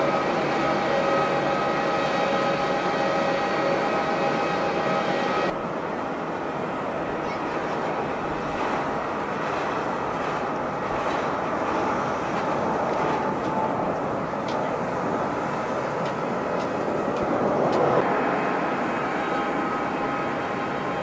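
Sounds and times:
thin whining tone: 0.0 - 11.9
jet engines droning: 0.0 - 21.0.

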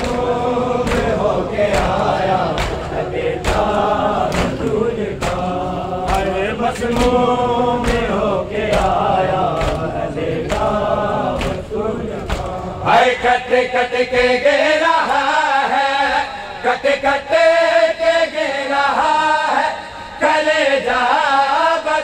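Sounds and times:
hands slapping chests: 0.0 - 12.7
crowd chanting a lament: 0.0 - 22.0.

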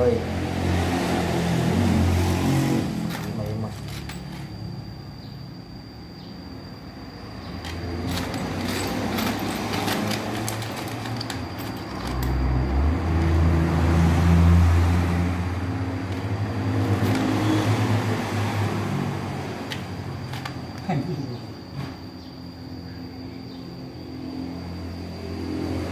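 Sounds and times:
small metal parts clinking: 2.9 - 4.7, 7.4 - 13.6, 16.1 - 17.6, 19.6 - 21.3
engine running: 7.6 - 21.0.

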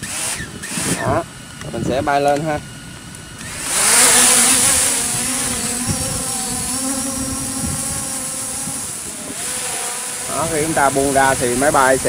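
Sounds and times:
drone motors buzzing whine: 0.0 - 12.0.

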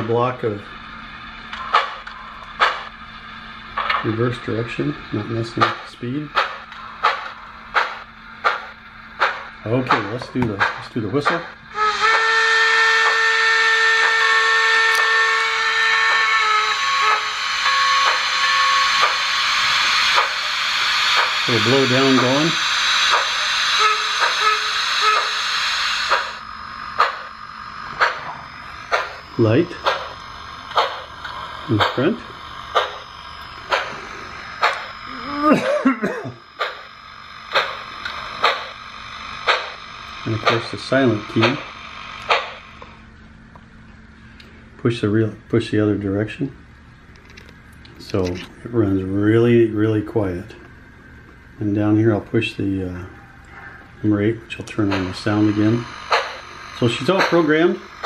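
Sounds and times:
steam whistle through small speaker: 11.7 - 20.4, 21.5 - 25.9
steady steam hiss: 15.8 - 42.4, 54.1 - 58.0.

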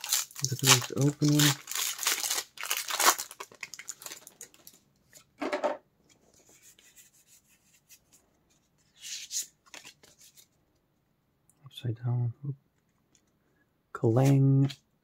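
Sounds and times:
foil wrapper crinkling: 0.0 - 4.8
cards sliding and rubbing: 6.4 - 10.5.

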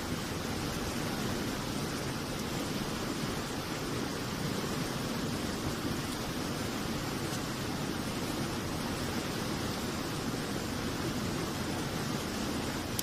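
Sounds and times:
water rushing: 0.0 - 13.0.

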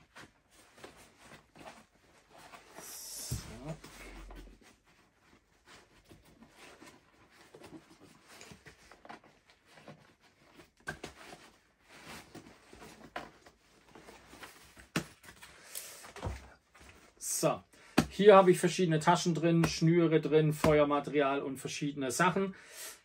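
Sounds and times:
fabric straps rustling and scraping: 0.0 - 17.2.

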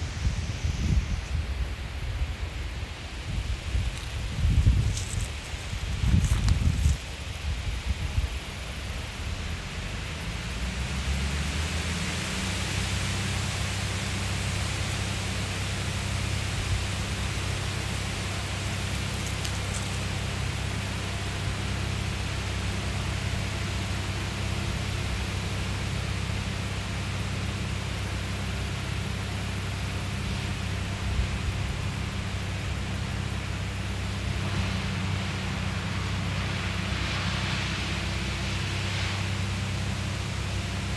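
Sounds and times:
wind rumble on microphone: 0.0 - 26.4
rustling leaves: 0.0 - 40.9.

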